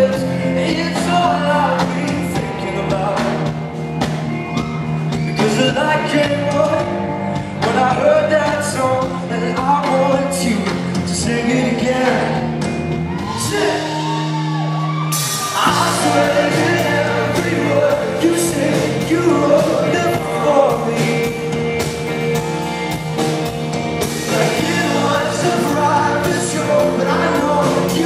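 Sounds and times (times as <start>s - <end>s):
man singing into microphone: 0.0s - 3.5s, 5.3s - 6.9s, 7.6s - 12.6s, 13.3s - 14.0s, 15.5s - 21.7s, 24.2s - 28.0s
live pop-rock band: 0.0s - 28.0s.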